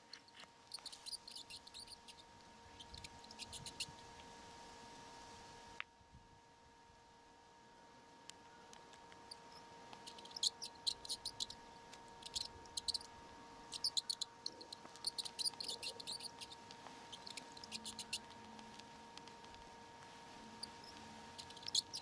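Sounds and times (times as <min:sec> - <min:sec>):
mice squeaking: 0:00.0 - 0:04.2, 0:09.1 - 0:22.0.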